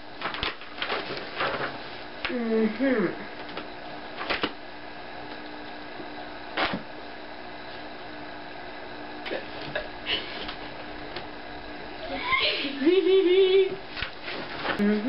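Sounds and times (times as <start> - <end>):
low room hum: 0.0 - 15.0
book pages rustling: 0.2 - 1.8.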